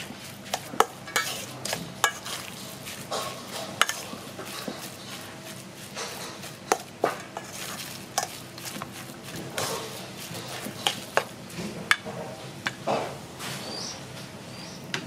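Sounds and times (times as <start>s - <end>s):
raw meat squelching: 0.0s - 11.6s
spoon clinking against metal bowl: 0.5s - 5.2s.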